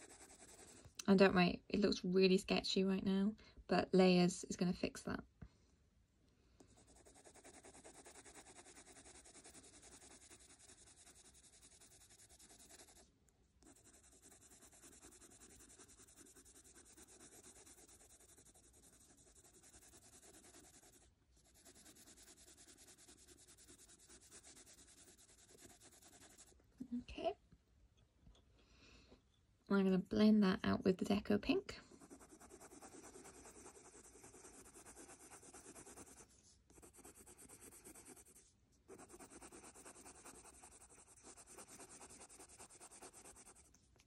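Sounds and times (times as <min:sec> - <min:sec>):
pencil scratching on paper: 0:00.0 - 0:00.9, 0:06.7 - 0:26.5, 0:31.9 - 0:43.7.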